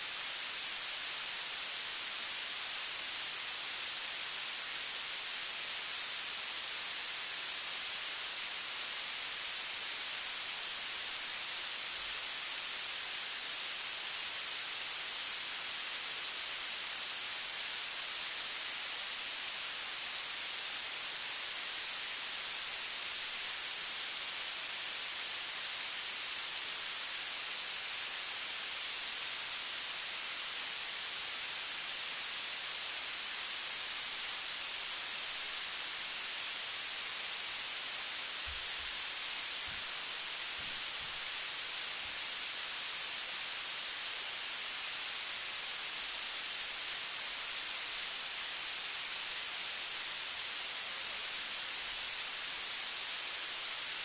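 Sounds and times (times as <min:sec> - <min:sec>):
recording hiss: 0:00.0 - 0:54.0.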